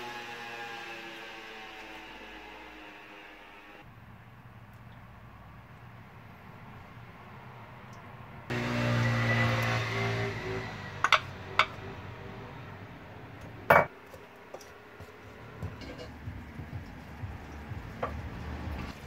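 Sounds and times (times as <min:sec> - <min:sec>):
cooking pot and utensils clinking: 0:15.6 - 0:16.3.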